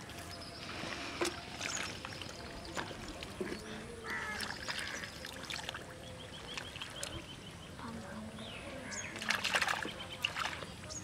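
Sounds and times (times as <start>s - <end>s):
trickling water: 0.0s - 11.0s
hands splashing in muddy water: 9.2s - 10.7s.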